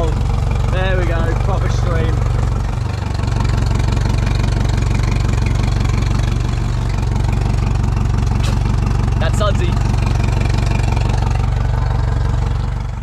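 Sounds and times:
outboard motor idling: 0.0s - 13.0s.

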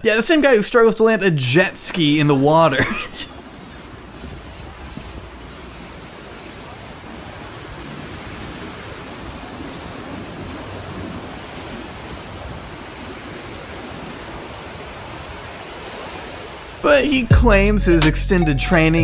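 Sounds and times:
ocean surf breaking on beach: 2.0s - 17.1s.

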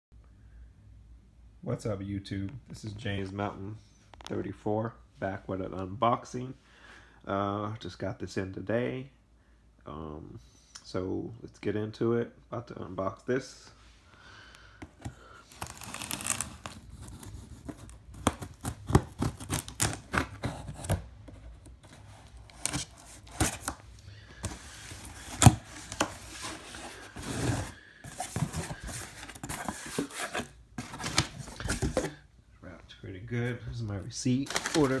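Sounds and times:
packing paper crinkling: 15.4s - 32.0s, 34.4s - 35.0s
cardboard flaps pulled apart: 15.5s - 21.0s
packing tape ripping: 15.5s - 21.0s.

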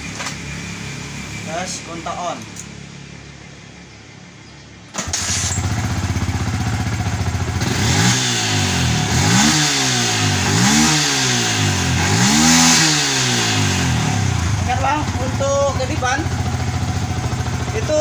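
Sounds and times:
motorcycle engine revving: 4.9s - 18.0s.

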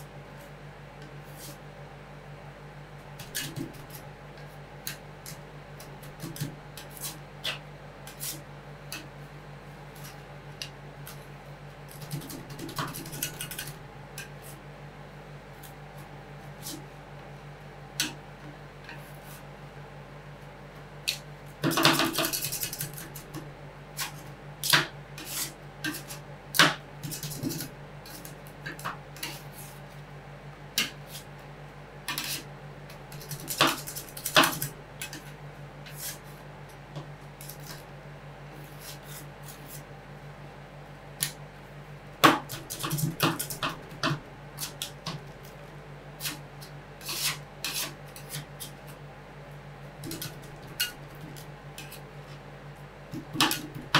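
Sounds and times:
steady low hum: 0.0s - 53.9s
metal spatulas scraping cold plate: 47.0s - 48.8s.

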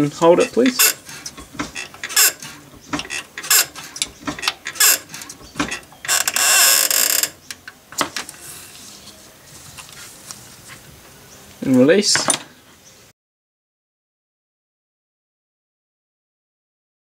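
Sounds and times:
clutch pedal clicks and creaks: 0.0s - 8.4s.

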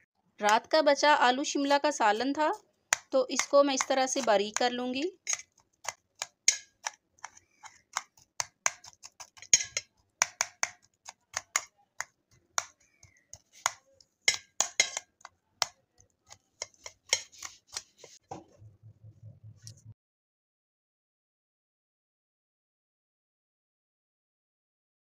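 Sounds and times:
knife tapping steel plate: 2.9s - 12.7s, 13.3s - 17.9s.

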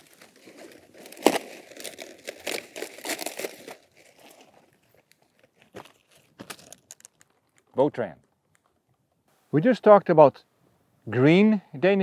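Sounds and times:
cabbage stalk snapping: 0.0s - 4.2s
cabbage leaves crunching: 0.0s - 6.6s.

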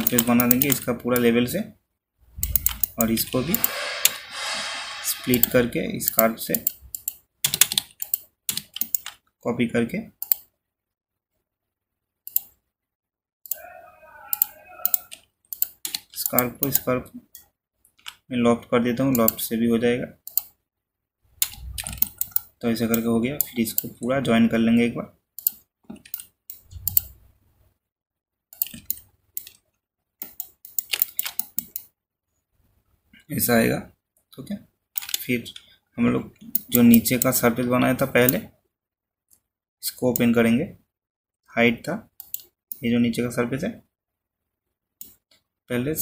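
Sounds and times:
mouse and keyboard clicks: 0.0s - 0.8s, 2.4s - 9.2s, 10.2s - 10.5s, 12.3s - 12.6s, 14.3s - 17.4s, 19.1s - 19.4s, 21.4s - 24.0s, 25.4s - 27.2s, 28.5s - 29.6s, 30.2s - 31.9s, 35.0s - 35.7s, 36.4s - 37.5s, 42.2s - 42.8s.

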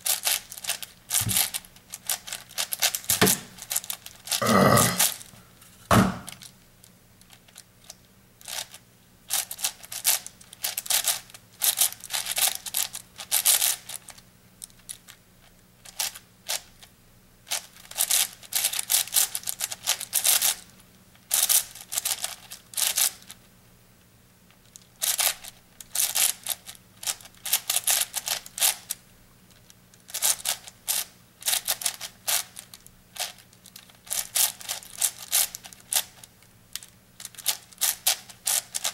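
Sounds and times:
puzzle cube clicking turns: 0.1s - 5.2s, 8.5s - 14.2s, 24.7s - 26.4s, 33.2s - 38.9s.

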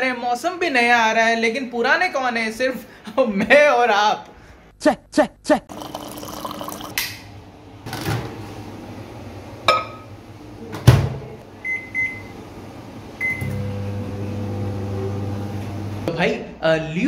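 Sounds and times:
microwave humming: 5.7s - 16.1s.

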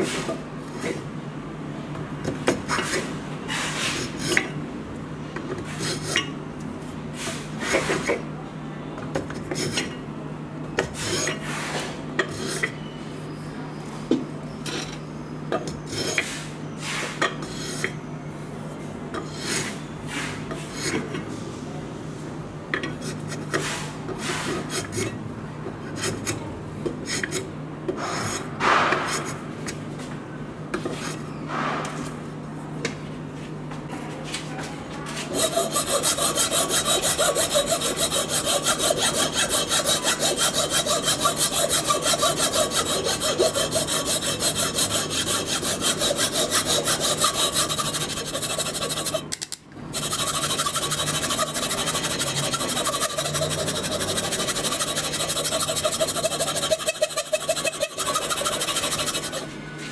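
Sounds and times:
steady low hum: 34.8s - 59.9s
hand plane scraping wood: 35.2s - 49.3s, 49.9s - 59.5s.

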